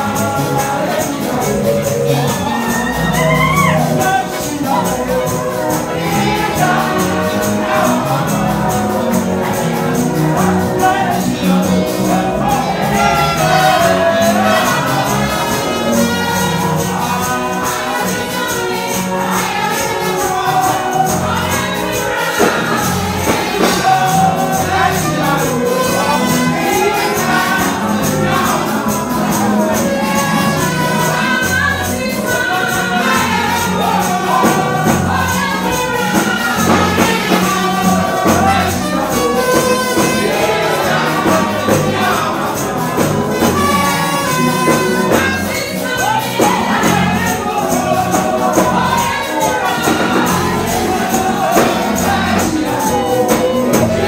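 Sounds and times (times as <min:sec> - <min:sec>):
band playing: 0:00.0 - 0:54.0
tambourine beat: 0:00.0 - 0:54.0
man singing: 0:23.2 - 0:31.3.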